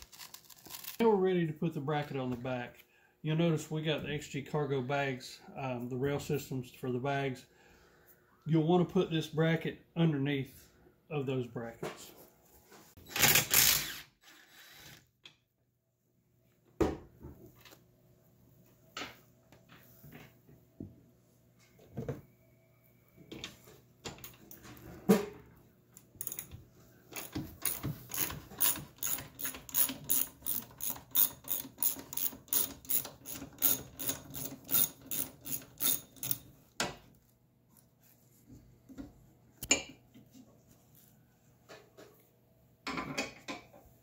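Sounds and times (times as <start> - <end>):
ratchet wrench clicking: 27.2 - 36.4.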